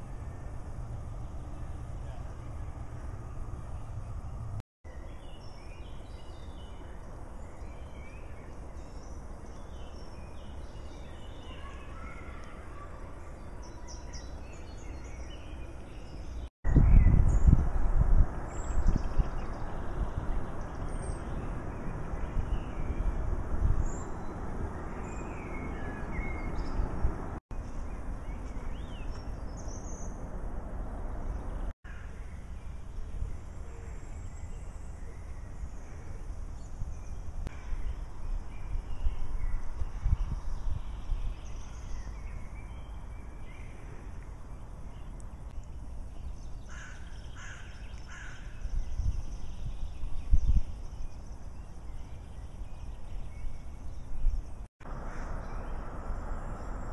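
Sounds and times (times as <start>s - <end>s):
wind rumble on microphone: 13.6s - 31.7s, 32.3s - 56.9s
harsh crow calls: 46.7s - 48.6s.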